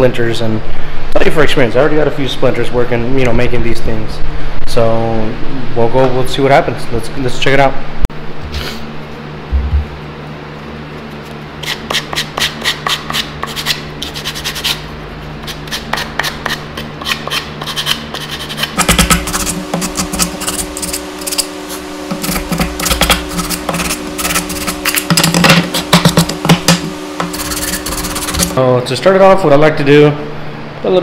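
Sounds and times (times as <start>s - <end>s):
sandpaper rubbing wood: 11.6s - 14.8s, 15.4s - 28.6s.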